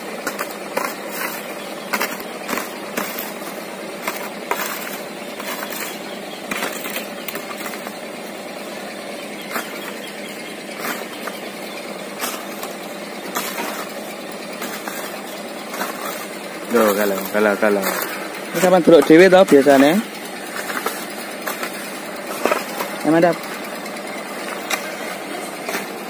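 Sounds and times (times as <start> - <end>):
truck engine running: 0.0 - 26.0
shovel scraping into sand: 0.1 - 8.0, 10.7 - 11.4, 12.1 - 22.9.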